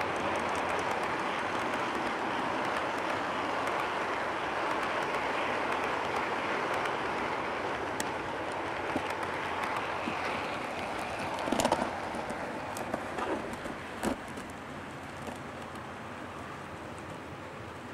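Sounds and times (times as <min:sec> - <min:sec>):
sharp clicks: 0:00.0 - 0:07.0
model train wheels rumbling: 0:00.0 - 0:17.9.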